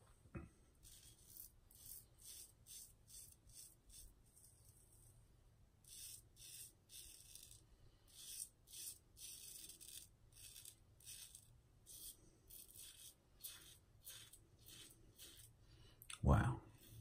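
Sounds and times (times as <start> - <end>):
razor scraping stubble: 0.8 - 4.1, 5.9 - 15.6, 16.7 - 17.0.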